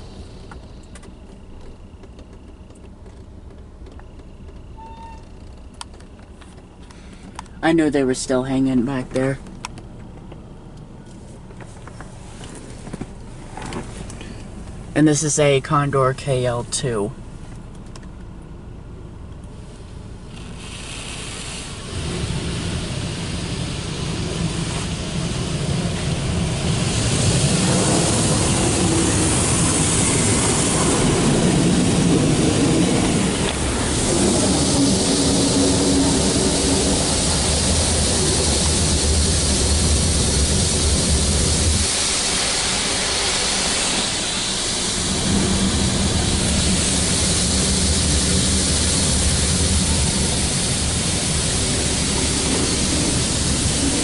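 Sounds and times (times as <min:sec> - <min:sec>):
car wash water spraying: 0:00.0 - 0:03.4, 0:06.0 - 0:09.4, 0:11.2 - 0:17.8, 0:19.5 - 0:54.0
low machine hum: 0:21.7 - 0:54.0.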